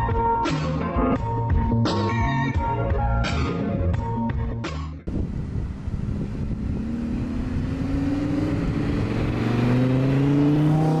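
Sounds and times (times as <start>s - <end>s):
sports car engine accelerating: 5.2s - 11.0s.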